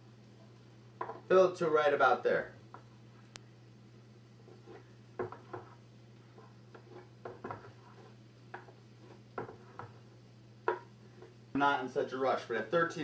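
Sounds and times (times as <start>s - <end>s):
spoon scraping metal bowl: 4.4s - 10.0s.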